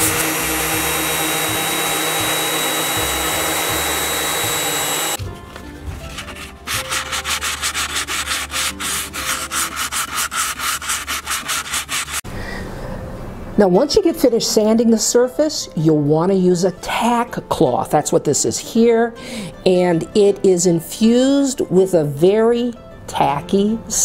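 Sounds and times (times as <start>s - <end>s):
orbital sander running: 0.0s - 5.2s, 6.2s - 12.2s
hand sanding wood: 0.0s - 12.2s.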